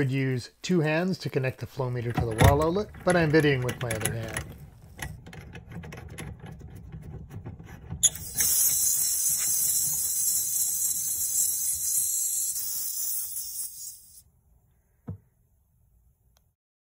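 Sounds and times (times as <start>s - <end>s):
pressurised gas hissing: 8.0s - 14.2s.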